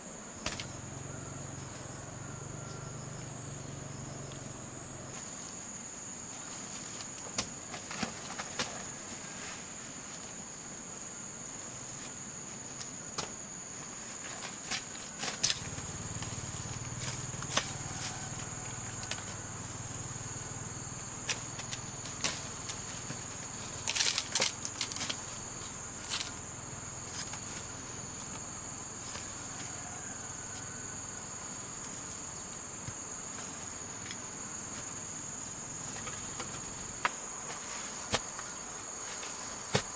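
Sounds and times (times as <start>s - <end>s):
leafy plants snapping and rustling: 0.4s - 0.8s, 14.1s - 19.7s, 21.0s - 26.4s.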